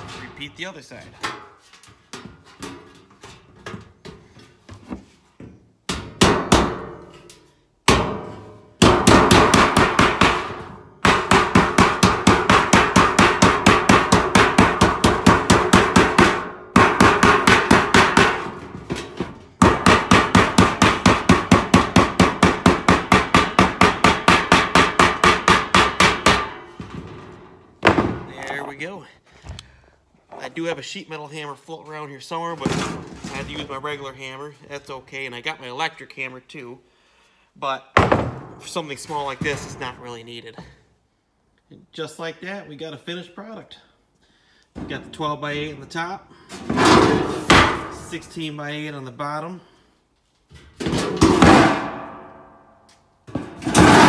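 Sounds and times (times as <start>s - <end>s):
hammer blows on sheet metal: 7.8s - 19.0s.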